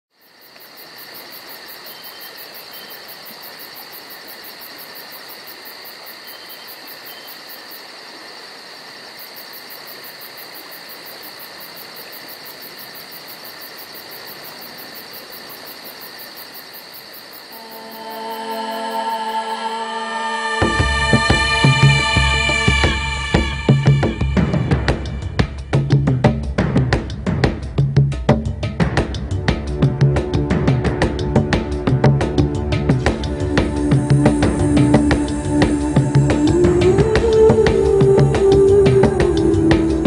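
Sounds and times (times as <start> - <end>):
insect chirring: 0.1 - 26.6
music: 17.6 - 40.0.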